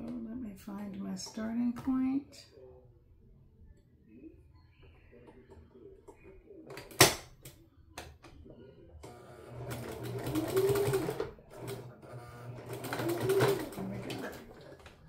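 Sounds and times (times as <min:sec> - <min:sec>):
sewing machine stitching: 0:09.0 - 0:15.0.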